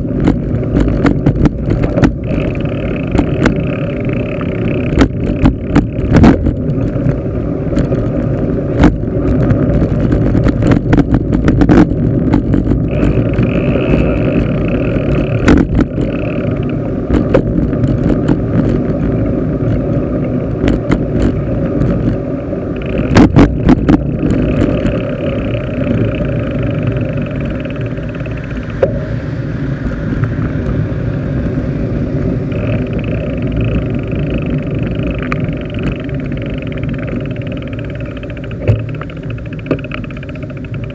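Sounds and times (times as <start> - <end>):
bicycle rattling over bumps: 0.0 - 40.9
bicycle road rumble: 0.0 - 40.9
wind on microphone: 0.0 - 40.9.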